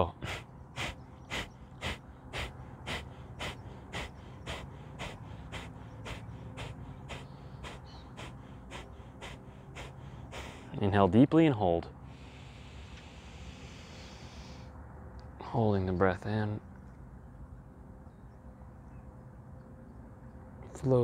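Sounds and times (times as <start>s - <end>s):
forceful exhalations through nostrils: 0.3s - 10.7s, 12.1s - 14.7s.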